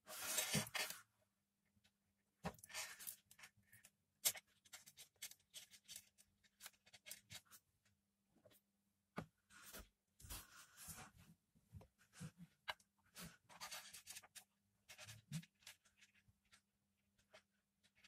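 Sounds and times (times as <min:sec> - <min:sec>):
wires rustling and clicking: 0:01.8 - 0:08.6.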